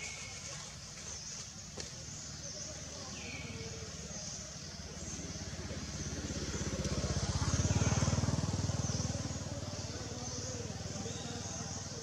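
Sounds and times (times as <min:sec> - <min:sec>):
vehicle engine passing by: 0:03.3 - 0:12.0.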